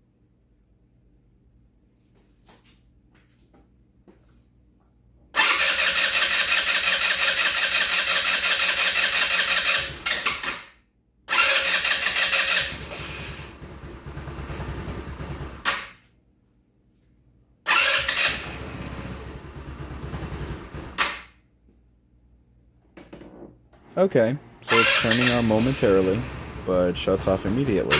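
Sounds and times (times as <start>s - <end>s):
scooter engine running: 5.4s - 10.1s, 11.3s - 15.7s, 17.7s - 21.0s, 24.7s - 27.9s
scooter electric starter: 5.4s - 10.7s, 11.3s - 15.9s, 17.7s - 21.3s, 24.6s - 27.9s.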